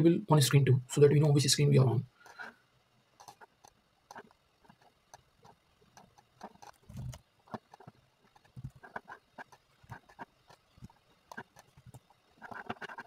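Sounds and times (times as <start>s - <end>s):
mouse and keyboard clicks: 3.2s - 13.0s.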